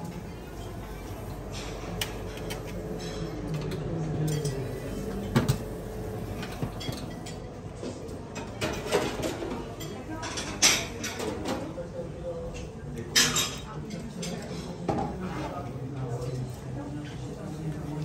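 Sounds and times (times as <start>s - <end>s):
dishes and cutlery clinking: 1.4s - 11.7s, 12.6s - 15.6s.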